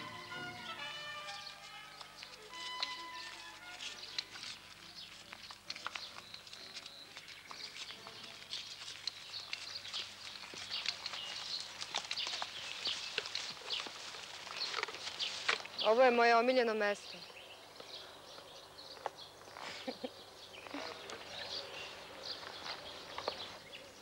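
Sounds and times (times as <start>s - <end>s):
songbirds chirping: 0.0s - 24.0s.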